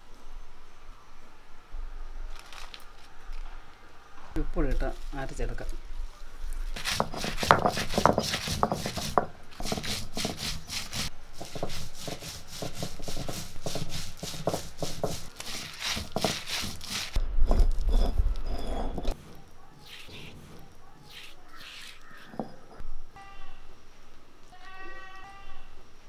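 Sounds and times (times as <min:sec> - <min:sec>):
stone roller grinding chillies: 0:06.7 - 0:22.8.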